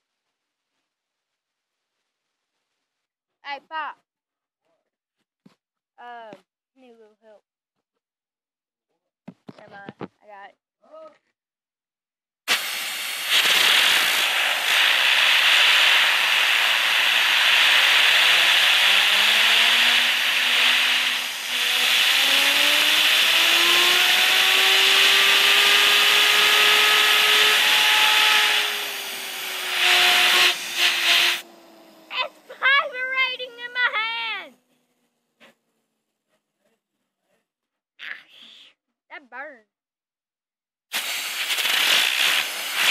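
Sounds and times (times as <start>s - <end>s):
compressed air hissing: 12.5s - 32.8s, 40.9s - 42.9s
fidget spinner whine: 13.2s - 36.2s, 41.3s - 42.9s.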